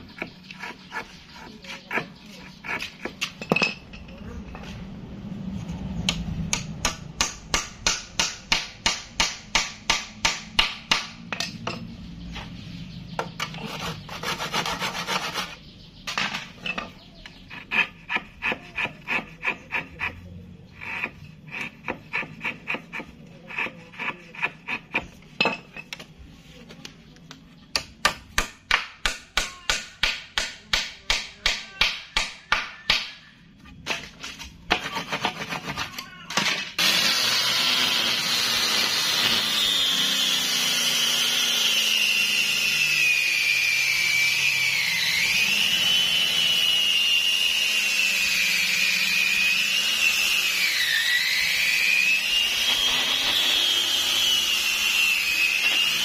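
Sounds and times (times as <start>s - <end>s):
hand tool rasping on hardwood: 0.0s - 3.2s, 13.5s - 15.6s, 17.4s - 25.2s.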